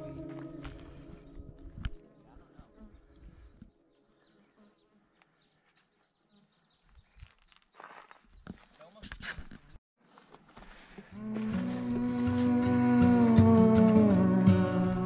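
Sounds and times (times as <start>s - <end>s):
held song notes: 11.2s - 15.0s.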